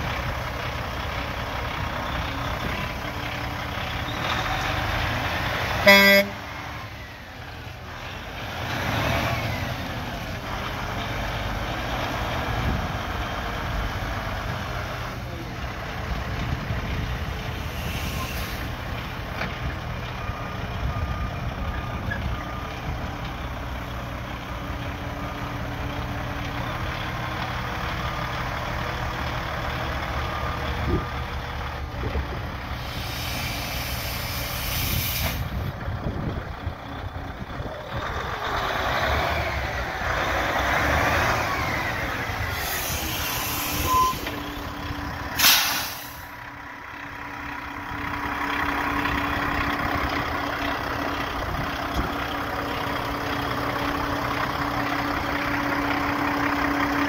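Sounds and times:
diesel truck engine running: 0:00.0 - 0:57.0
reversing alarm beeping: 0:43.4 - 0:44.5.

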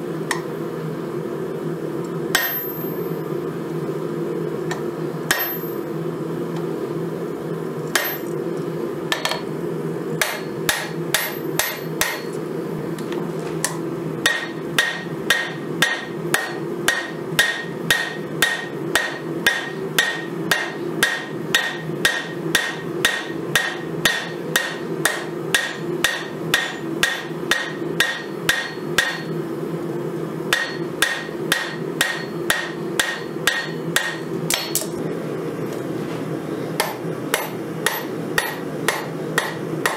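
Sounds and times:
hammer striking steel on an anvil: 0:02.3 - 0:03.0, 0:04.7 - 0:05.8, 0:07.9 - 0:08.4, 0:09.1 - 0:09.5, 0:10.2 - 0:12.4, 0:13.6 - 0:29.4, 0:30.5 - 0:35.0, 0:36.8 - 0:39.9.

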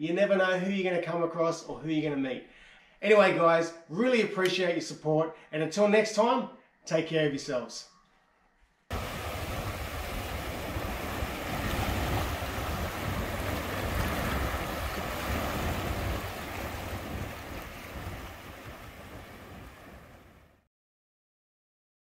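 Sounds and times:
wind buffeting the microphone: 0:08.9 - 0:20.5
surf washing onto a beach: 0:08.9 - 0:20.6.

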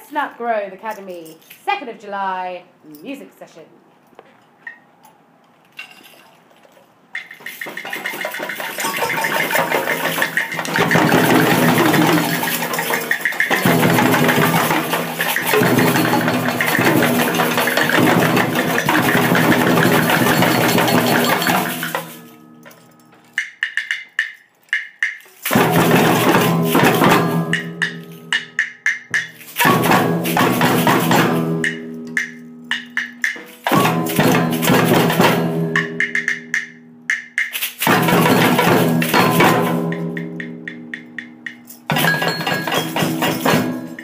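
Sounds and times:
samba percussion ensemble: 0:07.2 - 0:22.3, 0:25.5 - 0:44.0.

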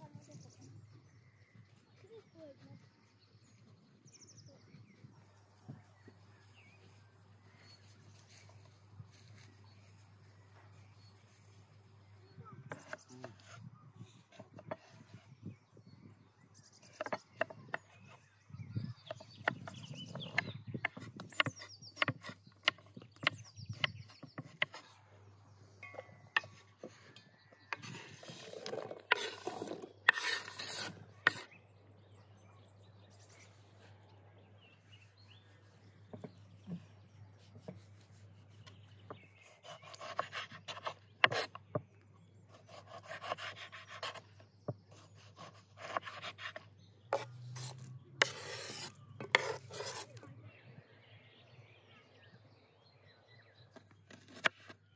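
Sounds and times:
knife chopping on wooden board: 0:19.0 - 0:24.8, 0:39.1 - 0:41.8
knife scraping on board: 0:25.9 - 0:31.5, 0:39.4 - 0:41.6, 0:42.6 - 0:44.3, 0:44.9 - 0:50.2
food scraped into bowl: 0:47.2 - 0:50.1.

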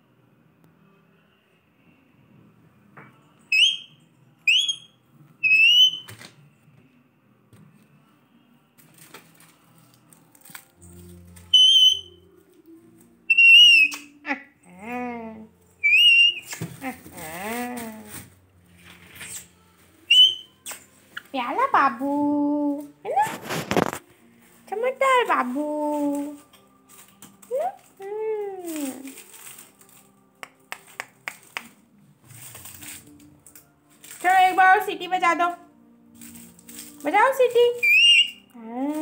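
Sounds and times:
parakeet wavering chatter: 0:03.5 - 0:03.9, 0:04.5 - 0:06.1, 0:11.5 - 0:12.2, 0:13.3 - 0:14.1, 0:15.8 - 0:16.6, 0:20.1 - 0:20.5, 0:37.8 - 0:38.4
parakeet rising whistles: 0:03.5 - 0:06.1, 0:11.5 - 0:12.2, 0:13.3 - 0:14.1, 0:15.8 - 0:16.6, 0:20.1 - 0:20.8, 0:37.8 - 0:38.4
harsh bird call: 0:04.5 - 0:06.1, 0:11.5 - 0:12.2, 0:15.8 - 0:16.5, 0:20.1 - 0:20.5, 0:37.8 - 0:38.4.

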